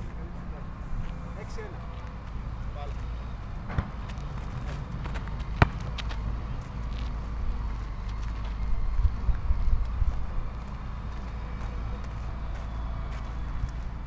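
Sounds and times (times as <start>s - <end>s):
steady low rumble: 0.0s - 12.1s
ball bouncing on concrete: 3.7s - 6.2s.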